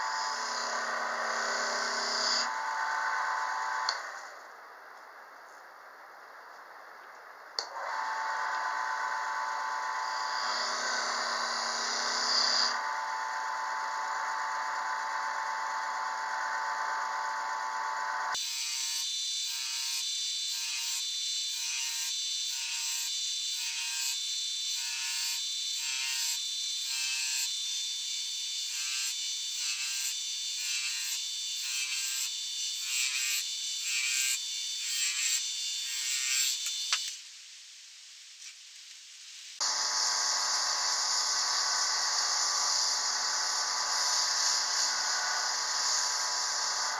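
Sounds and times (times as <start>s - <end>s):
turning tool cutting wood: 0.0s - 4.2s, 7.6s - 27.5s, 28.6s - 37.2s
wood lathe running: 0.1s - 4.0s, 7.7s - 18.3s.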